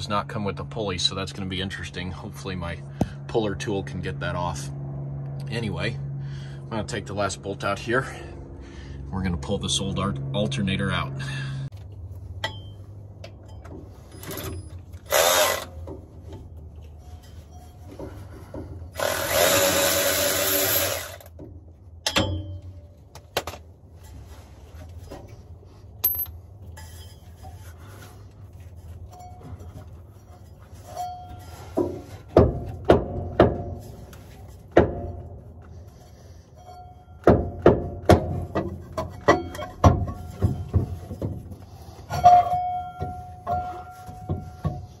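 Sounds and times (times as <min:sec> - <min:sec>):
power tool bursts: 0:14.3 - 0:15.8, 0:19.0 - 0:21.3
sharp metal knocks: 0:22.0 - 0:23.6, 0:31.7 - 0:34.0, 0:37.2 - 0:41.5.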